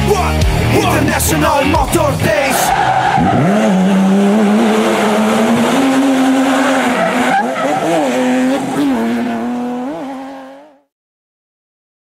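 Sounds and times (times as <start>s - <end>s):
car engine revving high: 0.9s - 10.9s
tyres squealing: 1.2s - 9.2s.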